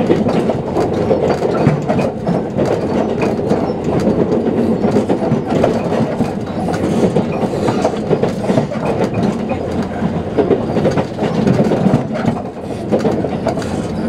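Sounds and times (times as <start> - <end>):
train wheels on rails clattering: 0.0 - 14.0.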